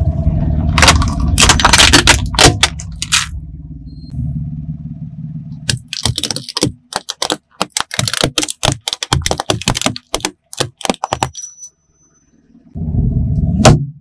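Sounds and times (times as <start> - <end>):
low rumble: 0.0 - 5.7, 12.5 - 14.0
plastic clips cracking under tyre: 0.8 - 3.3, 5.7 - 11.4.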